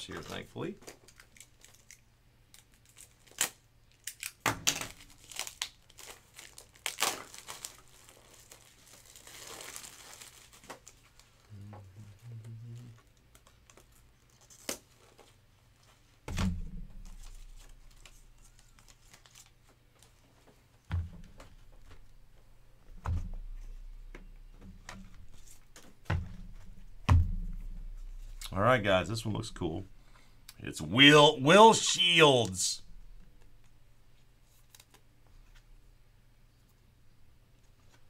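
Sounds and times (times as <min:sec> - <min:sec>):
plastic wrapping crinkling: 0:00.1 - 0:11.5, 0:16.9 - 0:23.0
thump: 0:16.3 - 0:17.3, 0:20.9 - 0:21.9, 0:23.0 - 0:25.1, 0:26.1 - 0:28.2.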